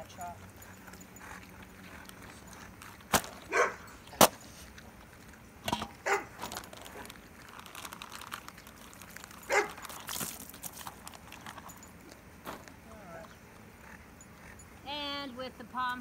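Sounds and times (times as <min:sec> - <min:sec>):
dog barking: 0:03.5 - 0:03.9, 0:06.0 - 0:06.4, 0:09.5 - 0:09.8.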